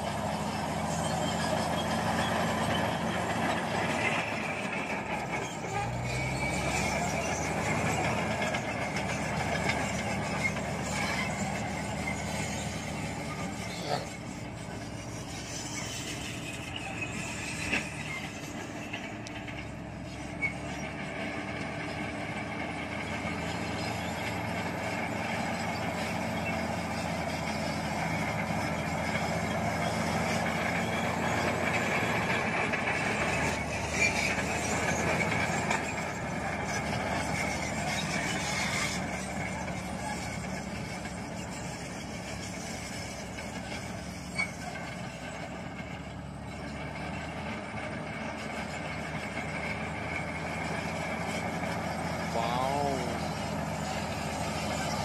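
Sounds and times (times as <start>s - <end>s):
bulldozer diesel engine under load: 0.0s - 55.0s.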